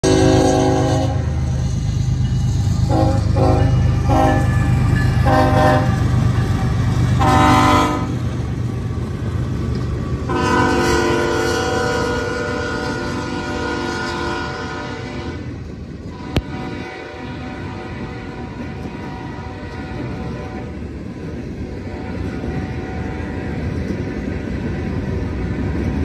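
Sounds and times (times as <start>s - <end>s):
locomotive air horn blasts: 0.0s - 1.6s, 2.5s - 6.0s, 7.2s - 8.2s, 10.3s - 15.5s, 16.1s - 20.8s, 21.8s - 23.8s
train cars rumbling past: 0.0s - 26.0s.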